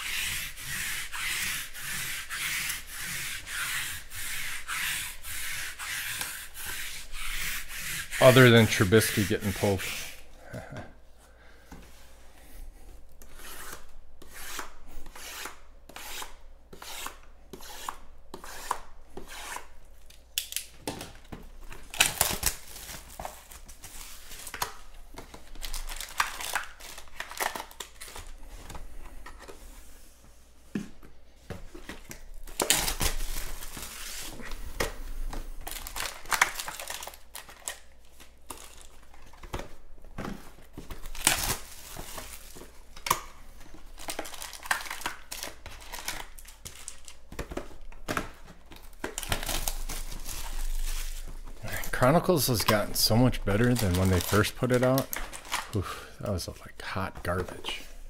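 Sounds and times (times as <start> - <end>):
crinkling of plastic and cardboard: 20.0 - 29.6, 31.5 - 57.8.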